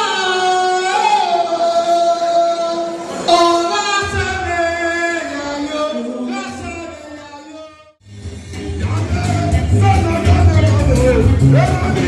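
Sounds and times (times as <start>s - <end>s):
low bass: 8.0s - 12.0s.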